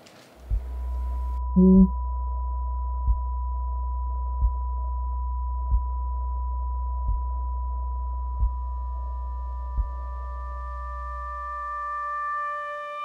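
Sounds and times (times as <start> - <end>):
steady high pure tone: 1.6 - 1.9.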